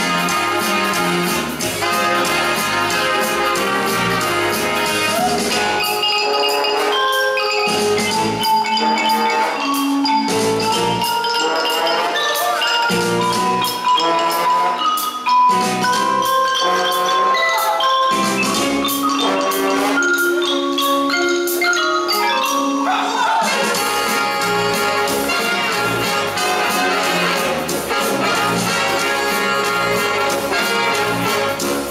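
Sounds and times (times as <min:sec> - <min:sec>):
backing music with held notes: 0:00.0 - 0:31.9
marimba melodic runs: 0:00.0 - 0:31.9.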